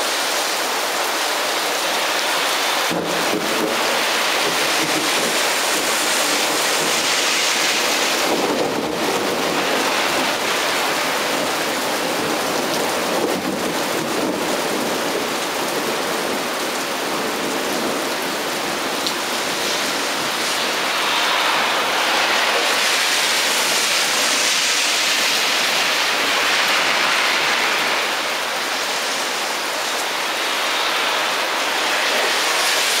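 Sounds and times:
heavy rain pouring: 0.0s - 33.0s.

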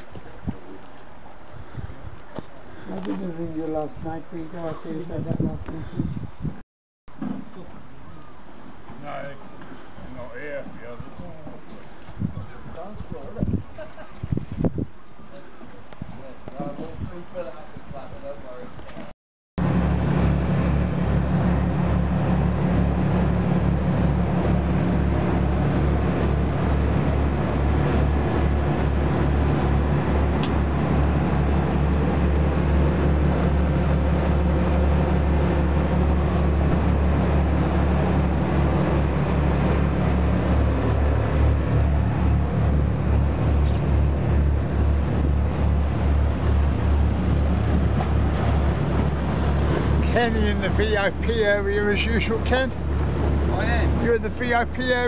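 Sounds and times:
boat engines droning: 19.6s - 55.0s
water rushing from hull wash: 19.6s - 55.0s.

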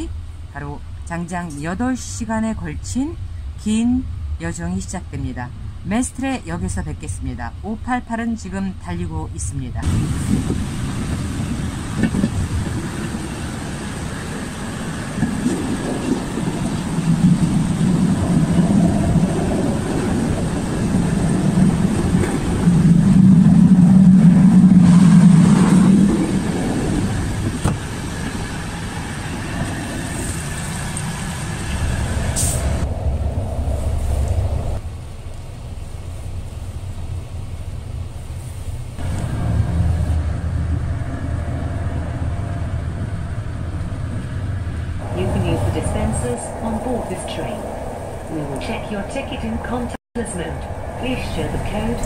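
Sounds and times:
train carriage rumble and rattle: 0.0s - 52.0s
low hum: 15.2s - 52.0s.

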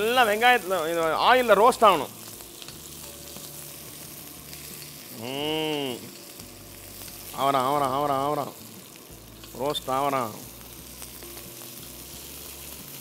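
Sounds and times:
food sizzling in hot oil: 0.0s - 13.0s.

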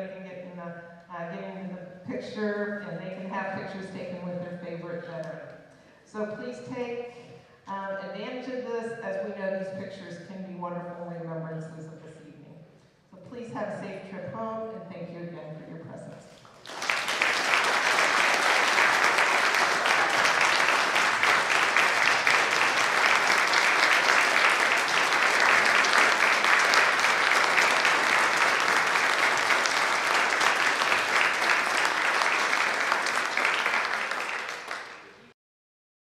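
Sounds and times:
audience applauding: 16.5s - 35.3s.

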